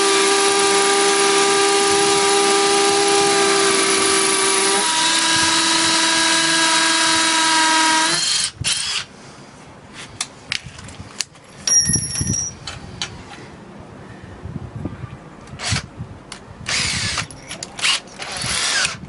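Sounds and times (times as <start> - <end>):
drill whir: 0.0 - 9.1, 16.6 - 19.0
drills drilling into concrete: 0.0 - 9.1, 16.7 - 19.0.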